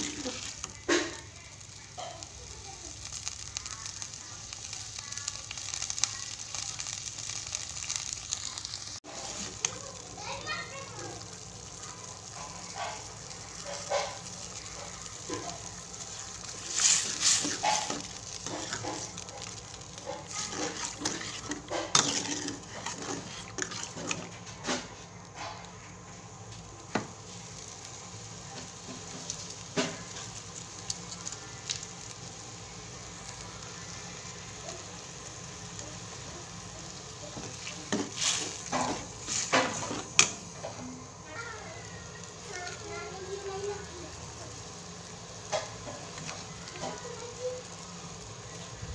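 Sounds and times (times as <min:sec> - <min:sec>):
metal ladle scraping a wok: 0:16.6 - 0:19.1, 0:20.2 - 0:24.8.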